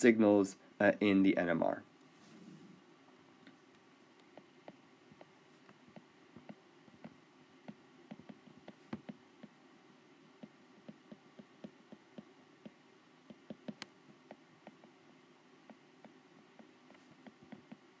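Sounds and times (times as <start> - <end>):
low steady hum: 0.0 - 18.0
stylus tapping on tablet screen: 4.2 - 9.6, 10.4 - 15.0, 15.6 - 18.0.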